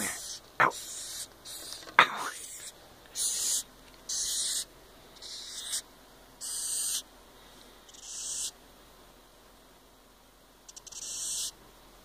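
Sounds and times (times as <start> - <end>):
cockroach hissing: 0.0 - 7.0, 7.9 - 8.6, 10.7 - 11.6.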